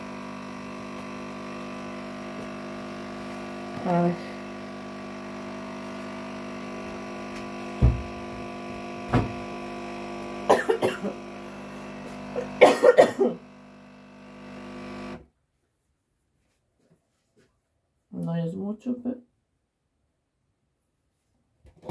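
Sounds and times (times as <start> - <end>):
appliance electric hum: 0.0 - 15.3
sharp knocks: 7.8 - 8.1
woman coughing: 10.5 - 11.2, 12.4 - 13.4.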